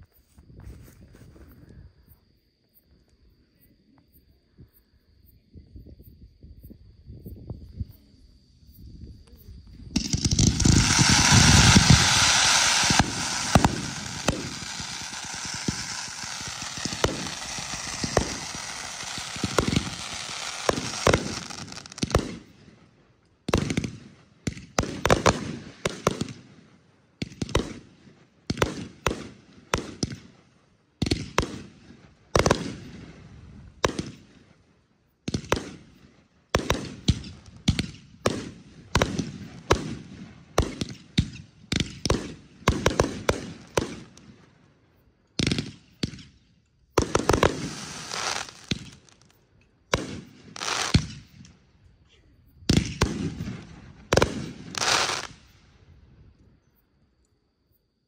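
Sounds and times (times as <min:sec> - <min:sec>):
fireworks hissing rush: 0:09.9 - 0:22.5, 0:47.0 - 0:49.3, 0:50.5 - 0:51.1, 0:54.1 - 0:55.4
aerial firework shells bursting: 0:09.9 - 0:22.6.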